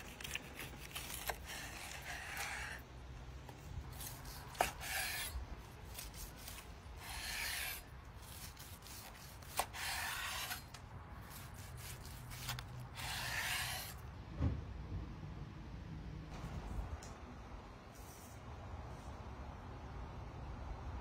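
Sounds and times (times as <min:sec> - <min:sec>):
knife sawing through steak crust: 0:00.0 - 0:02.8, 0:03.9 - 0:14.0.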